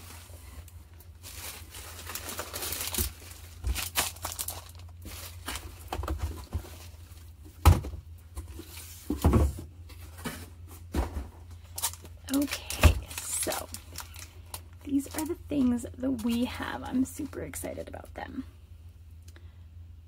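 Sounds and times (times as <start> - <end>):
bubble wrap crinkling: 0.0 - 7.5, 11.6 - 18.0.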